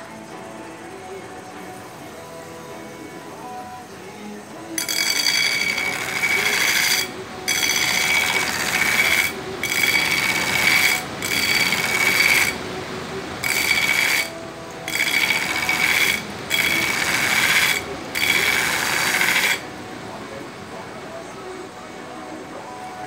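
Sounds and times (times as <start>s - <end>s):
belt grinder grinding steel: 4.8s - 19.7s
grinder motor running: 4.8s - 19.7s.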